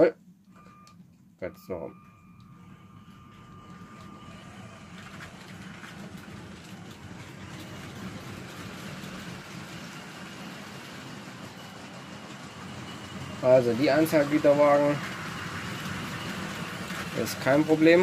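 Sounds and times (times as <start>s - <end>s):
toy train motor hum: 2.3s - 18.0s
wheels rolling on plastic track: 3.4s - 18.0s.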